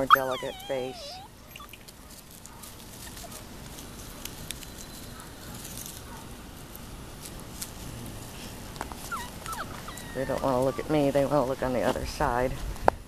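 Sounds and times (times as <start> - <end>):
paws rustling dry leaves: 0.2 - 12.7.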